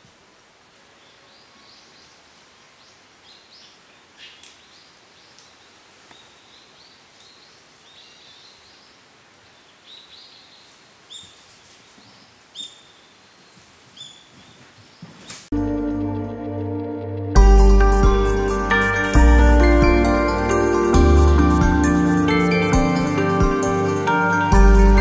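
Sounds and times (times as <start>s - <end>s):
steady hiss: 0.0s - 14.4s, 17.4s - 25.0s
small birds chirping: 0.9s - 15.5s.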